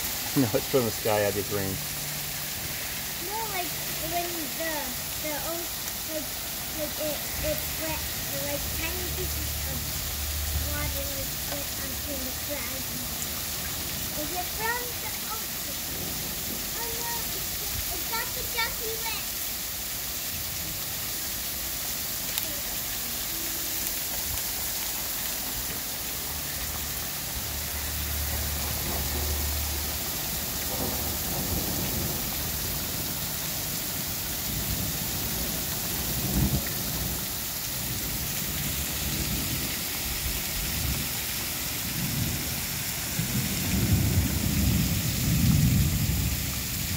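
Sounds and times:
heavy rain falling: 0.0s - 46.9s
thunder rumbling: 1.8s - 18.8s, 27.5s - 46.9s.

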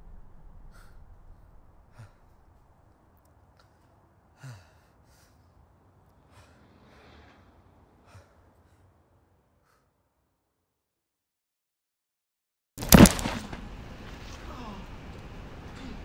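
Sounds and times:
person breathing quietly: 0.7s - 2.8s, 3.6s - 10.2s.

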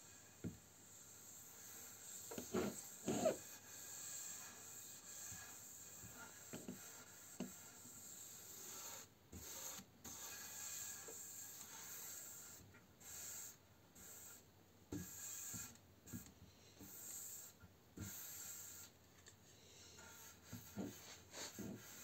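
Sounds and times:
sponge pad scrubbing wood: 20.0s - 22.0s.

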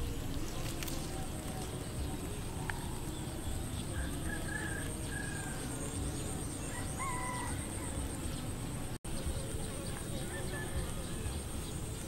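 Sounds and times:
birds whistling: 0.0s - 12.0s.

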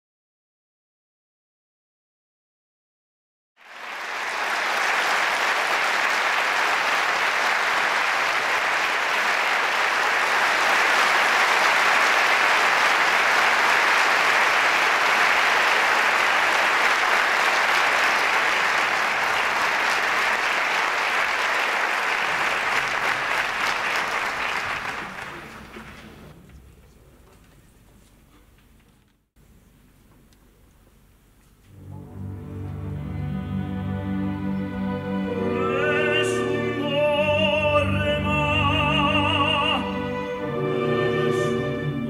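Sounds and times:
audience applauding: 3.6s - 26.4s.

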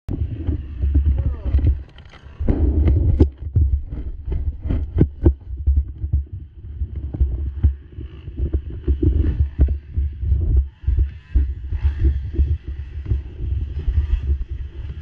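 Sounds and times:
wind buffeting microphone: 0.1s - 15.0s.

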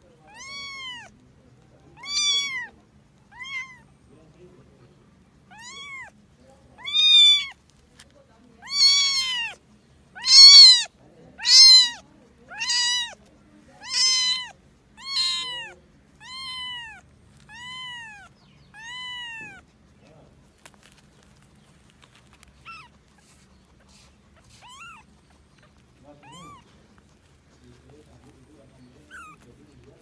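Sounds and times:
kitten mewing: 0.2s - 1.2s, 2.0s - 2.7s, 3.3s - 3.9s, 5.5s - 6.2s, 6.8s - 7.6s, 8.6s - 13.2s, 13.8s - 19.7s, 22.6s - 27.2s, 29.0s - 29.5s.

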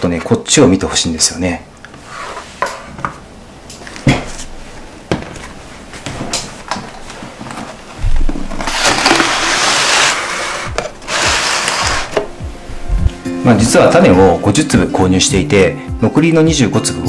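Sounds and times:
plastic tray scraping across table: 8.5s - 12.3s.

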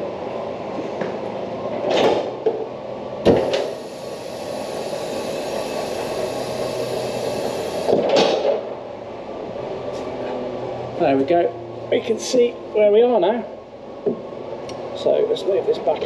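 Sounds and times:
vehicle lift running with hiss: 0.0s - 8.9s.

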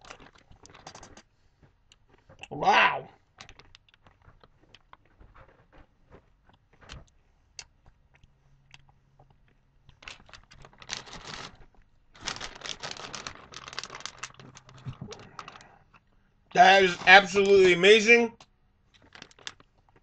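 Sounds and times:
plastic bag crinkling: 0.0s - 1.2s, 10.0s - 15.8s, 19.0s - 20.0s.

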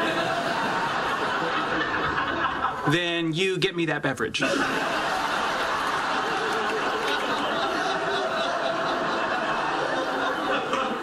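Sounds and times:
audience laughing: 0.0s - 2.9s, 4.4s - 11.0s.

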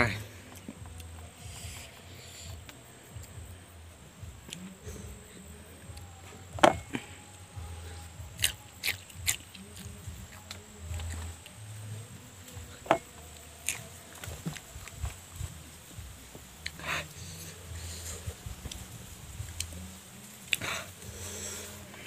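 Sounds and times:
person crunching chillies: 8.3s - 11.6s, 12.9s - 15.0s.

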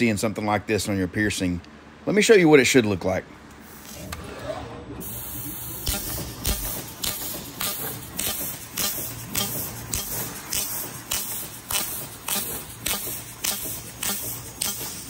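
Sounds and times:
low machine hum: 0.0s - 15.0s
laser piercing hiss: 5.0s - 15.0s.

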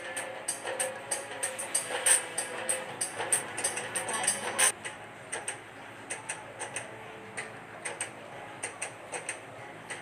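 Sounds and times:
faint steady background noise: 0.0s - 10.0s.

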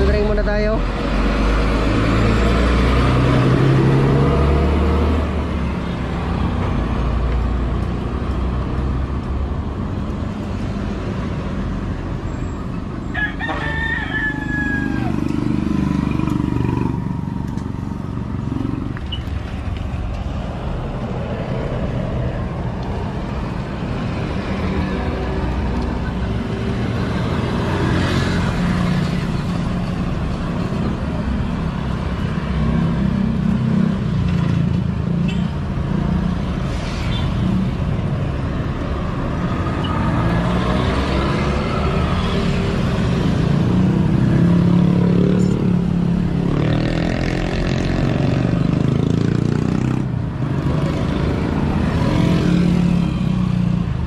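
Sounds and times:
road traffic rumble: 0.0s - 54.0s
rooster crowing: 13.0s - 15.5s.

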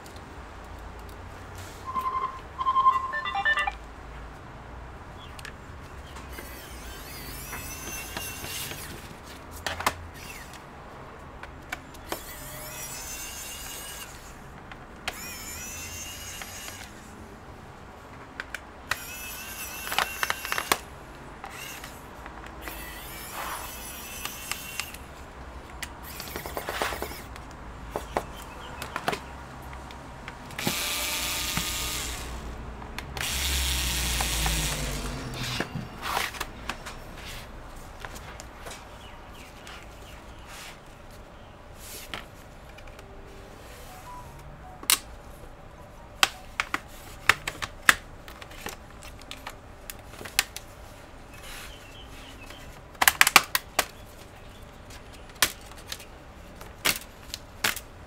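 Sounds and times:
electric screwdriver whirring: 30.6s - 32.4s, 33.2s - 35.7s.

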